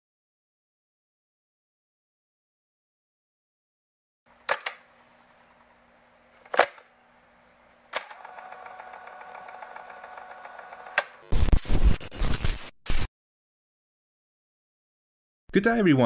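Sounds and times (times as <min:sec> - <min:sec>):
faint electrical hum: 0:04.3 - 0:11.5.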